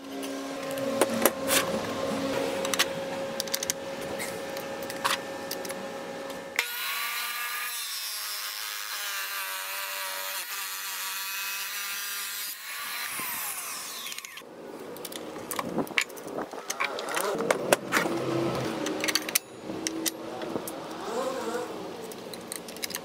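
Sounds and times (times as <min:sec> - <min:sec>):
tile saw grinding whine: 0:00.0 - 0:14.4.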